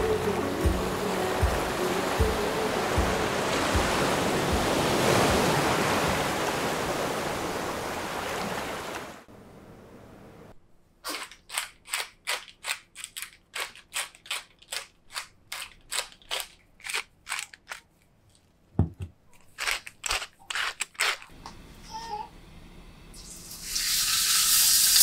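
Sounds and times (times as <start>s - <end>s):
spice mill grinding: 19.4s - 21.3s.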